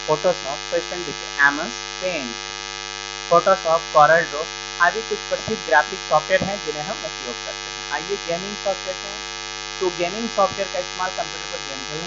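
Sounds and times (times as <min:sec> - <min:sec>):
electrical mains hum and buzz: 0:00.0 - 0:12.0
man reading aloud: 0:03.4 - 0:08.9.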